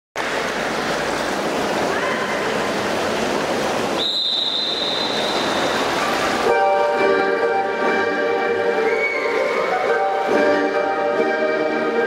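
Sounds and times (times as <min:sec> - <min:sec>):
high-pitched whistle blast: 0:04.0 - 0:05.8, 0:08.8 - 0:09.8
crowd cheering and applauding: 0:08.6 - 0:10.4.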